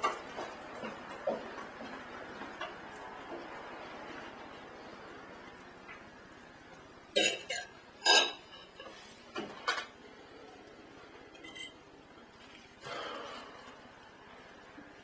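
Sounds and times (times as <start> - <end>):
cutlery clinking on plates: 7.2 - 10.0, 11.3 - 11.8.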